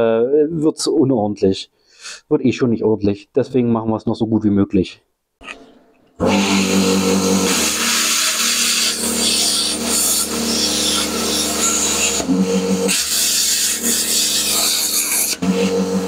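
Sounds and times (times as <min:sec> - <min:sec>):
plasma cutter buzzing arc: 0:07.5 - 0:12.2, 0:12.9 - 0:15.4.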